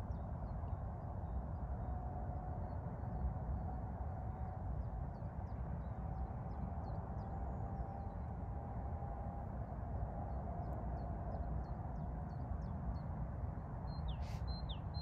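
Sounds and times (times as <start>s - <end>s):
short bird chirps: 14.1s - 14.8s.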